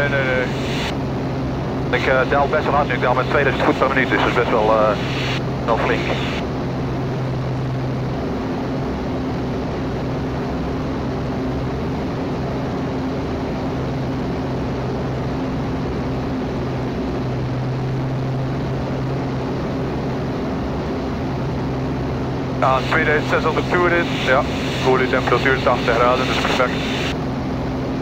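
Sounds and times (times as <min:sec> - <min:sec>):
aircraft engine and propeller droning: 0:00.0 - 0:28.0.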